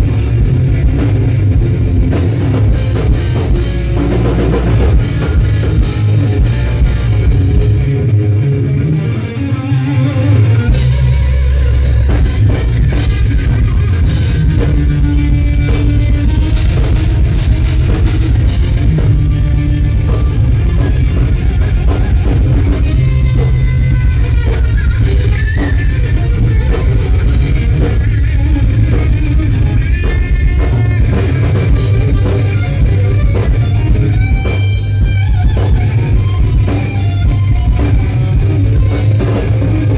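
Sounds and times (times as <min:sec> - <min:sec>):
drum kit: 0:00.0 - 0:09.1, 0:10.1 - 0:39.9
amplified electric guitar: 0:00.0 - 0:39.9.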